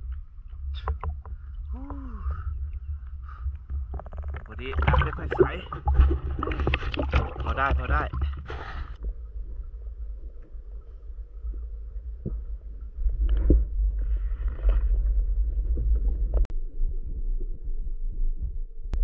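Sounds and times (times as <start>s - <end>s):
muffled underwater rumble: 0.0s - 19.0s.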